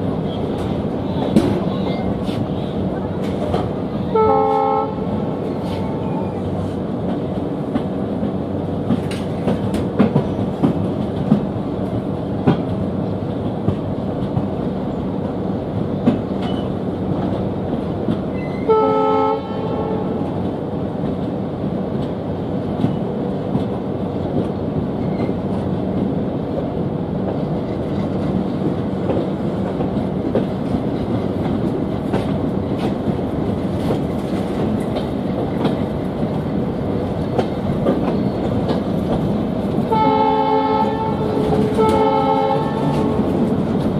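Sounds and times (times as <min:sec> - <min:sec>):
train rumble: 0:00.0 - 0:43.9
locomotive horn: 0:04.1 - 0:05.2, 0:18.5 - 0:20.2, 0:39.9 - 0:43.4
wheels clicking over rail joints: 0:05.4 - 0:18.7, 0:27.2 - 0:43.9.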